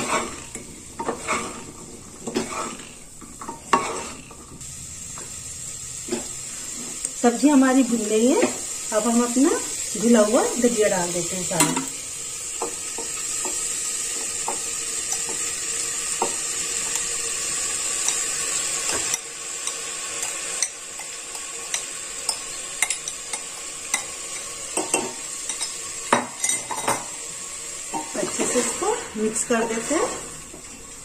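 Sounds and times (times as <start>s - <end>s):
spoon tapping and scraping pot: 0.0s - 4.6s, 12.6s - 15.5s, 18.0s - 27.1s
vegetables sizzling in a pot: 0.0s - 31.0s.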